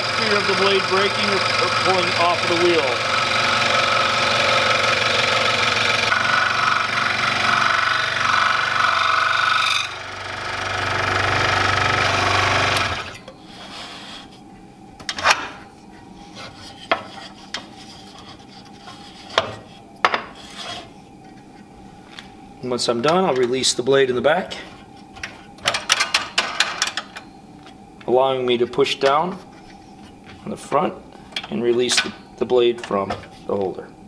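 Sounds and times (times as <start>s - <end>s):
scroll saw cutting wood: 0.0s - 14.3s.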